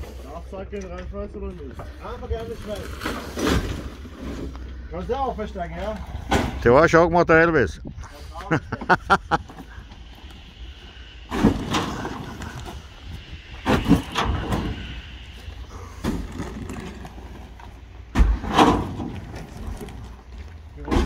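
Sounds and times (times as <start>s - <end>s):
forklift engine humming: 8.8s - 20.9s.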